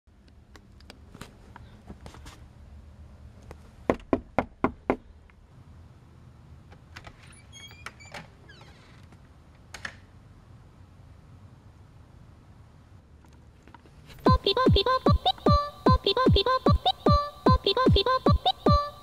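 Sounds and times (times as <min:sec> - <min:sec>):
knocks on a door: 0:03.9 - 0:05.0
door squeaking open: 0:07.1 - 0:09.1.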